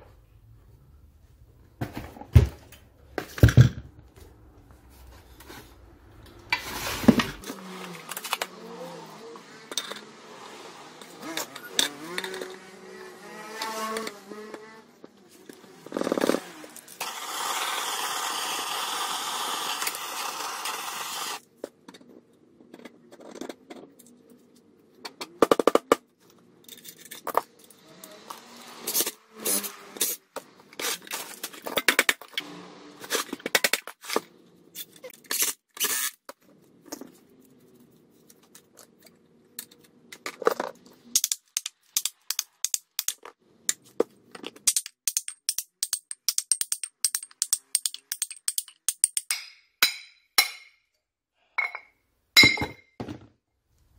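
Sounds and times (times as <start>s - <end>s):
screws and metal parts clattering: 9.6s - 10.1s, 11.2s - 14.2s, 26.6s - 28.2s, 36.8s - 50.7s
cordless power driver running: 16.6s - 21.4s.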